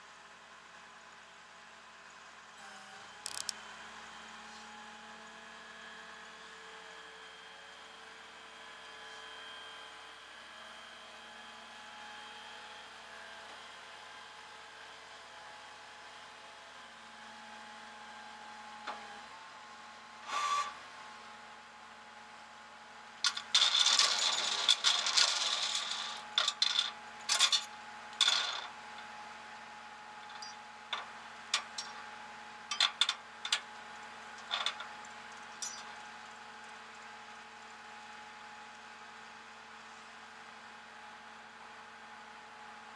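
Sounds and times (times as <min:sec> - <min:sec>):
chain clinking on metal deck: 0:23.2 - 0:28.7, 0:30.3 - 0:30.6, 0:31.6 - 0:32.0, 0:34.4 - 0:36.0.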